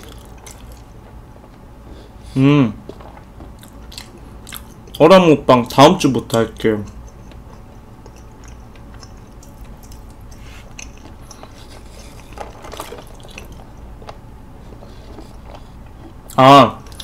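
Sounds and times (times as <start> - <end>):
mouth chewing: 0.0 - 1.2, 2.8 - 5.0, 6.8 - 13.9.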